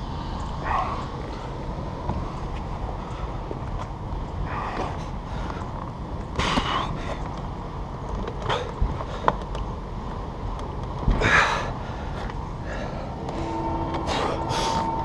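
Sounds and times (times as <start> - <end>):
man breathing with effort: 0.0 - 7.3, 8.4 - 9.6, 11.1 - 15.0
low rumble: 8.8 - 15.0.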